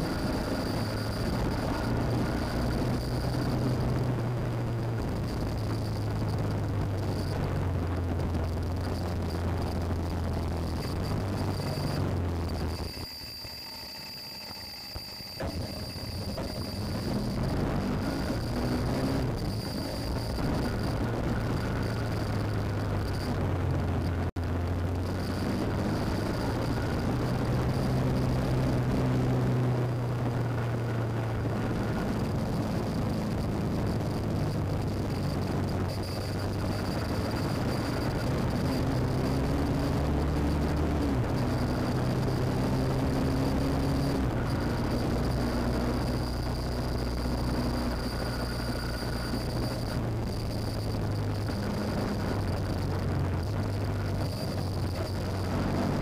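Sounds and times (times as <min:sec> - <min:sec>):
motorcycle engine running: 0:15.4 - 0:56.0
wind noise: 0:15.4 - 0:56.0.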